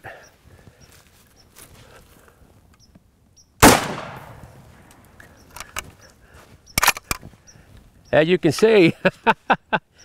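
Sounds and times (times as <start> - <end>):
rifle shot: 3.6 - 4.8.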